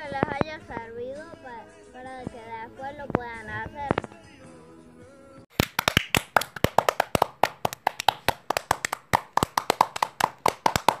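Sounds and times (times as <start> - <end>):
hands clapping: 5.5 - 11.0.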